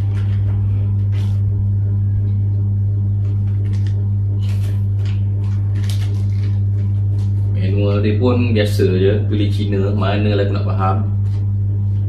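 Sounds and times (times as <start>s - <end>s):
steady low hum: 0.0s - 12.0s
paper and plastic packaging rustling: 3.6s - 7.4s.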